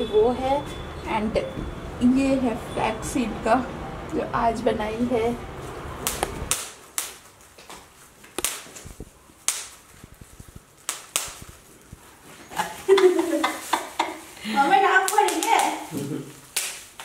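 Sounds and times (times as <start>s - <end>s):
bubble wrap popping: 6.0s - 17.0s
plastic crinkling: 6.0s - 17.0s.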